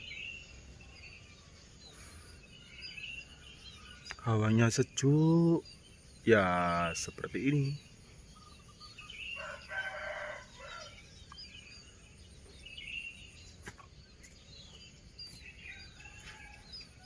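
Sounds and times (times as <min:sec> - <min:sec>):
small birds chirping: 0:00.0 - 0:17.0
rooster crowing: 0:09.3 - 0:11.0, 0:15.6 - 0:17.0.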